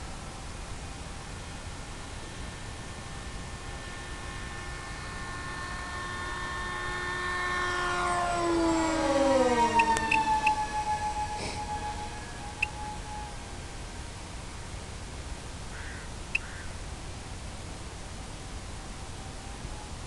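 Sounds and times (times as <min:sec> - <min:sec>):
model plane propeller whine: 0:00.0 - 0:20.0.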